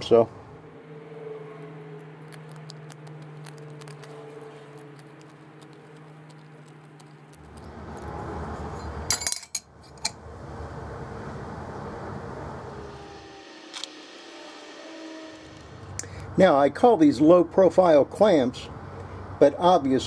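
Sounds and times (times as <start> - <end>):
small metal parts clinking: 8.8 - 10.1.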